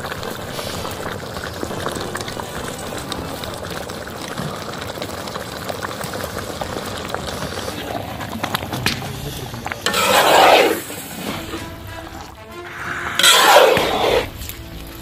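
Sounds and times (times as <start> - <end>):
gravy bubbling in a pot: 0.0 - 15.0
ladle scraping metal pot: 9.9 - 14.6.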